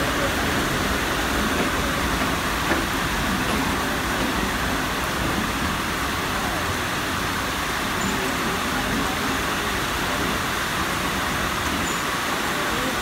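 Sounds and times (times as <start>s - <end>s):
heavy rain: 0.0s - 13.0s
train coaches rumbling past: 0.0s - 13.0s.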